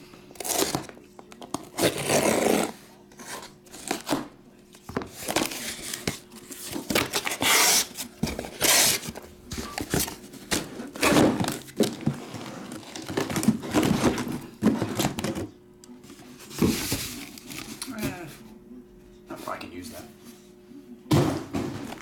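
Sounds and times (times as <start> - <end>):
cardboard scraping: 1.6 - 4.3, 5.0 - 15.3
boxes knocking and thumping: 8.2 - 15.6, 21.1 - 22.0.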